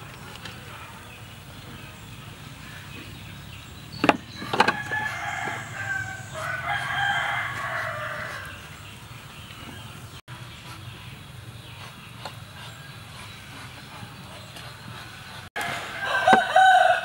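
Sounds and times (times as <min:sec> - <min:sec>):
rooster crowing: 0:04.4 - 0:08.8, 0:15.6 - 0:17.0.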